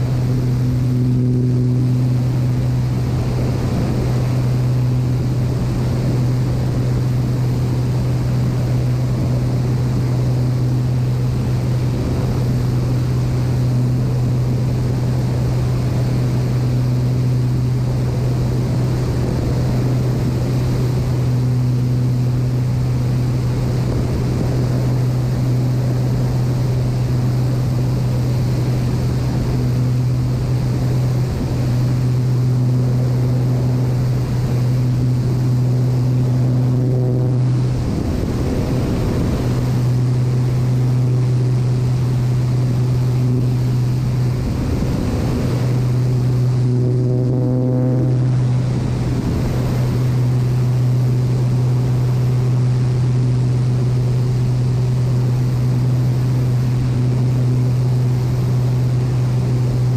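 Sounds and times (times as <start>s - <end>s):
aircraft engine and propeller drone: 0.0s - 59.9s
wind noise on microphone: 0.0s - 59.9s.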